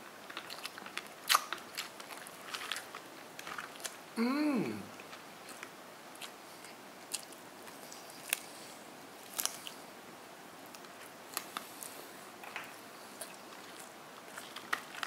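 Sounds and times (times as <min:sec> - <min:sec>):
crunching bites of fried food: 0:00.3 - 0:04.0, 0:09.2 - 0:09.8.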